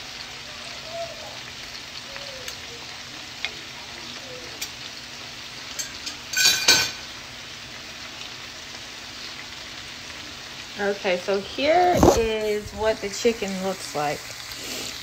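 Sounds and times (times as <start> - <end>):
chicken sizzling in a frying pan: 0.0 - 15.0
metal utensils clicking on pan: 5.7 - 7.0
ringing metal clatter on pan: 5.7 - 7.0.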